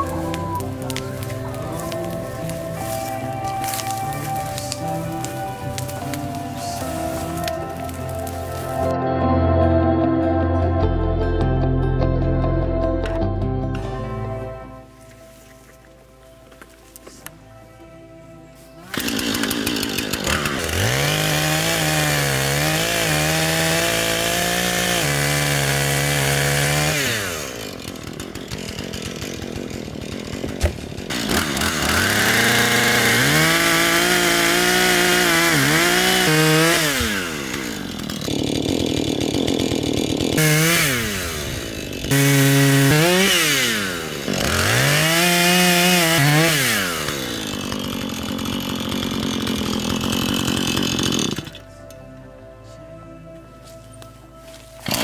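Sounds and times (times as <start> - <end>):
chainsaw cutting wood: 0.0 - 9.0, 18.8 - 51.7, 54.8 - 55.0.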